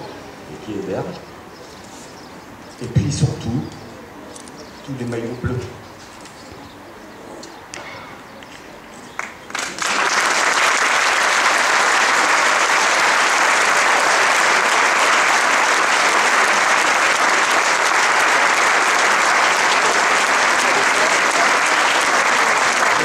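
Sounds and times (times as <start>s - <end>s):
crowd applauding: 9.2s - 23.0s.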